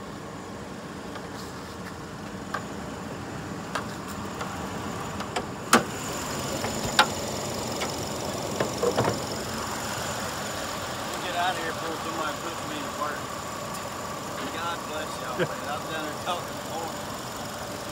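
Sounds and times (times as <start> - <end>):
truck engine idling: 0.0 - 17.9.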